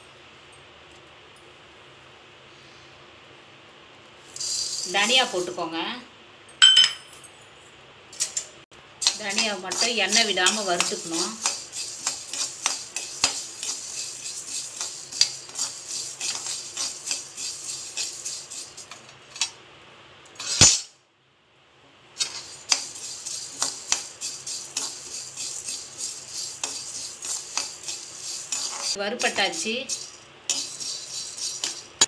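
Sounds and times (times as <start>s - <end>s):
metal spatula scraping a pan: 9.0s - 19.5s, 20.4s - 20.8s, 22.2s - 32.0s.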